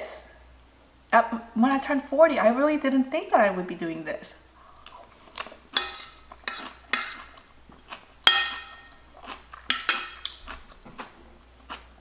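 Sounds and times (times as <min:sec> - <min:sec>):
metal spoon clinking on ceramic plate: 0:05.8 - 0:07.2, 0:08.3 - 0:09.0, 0:09.7 - 0:10.4.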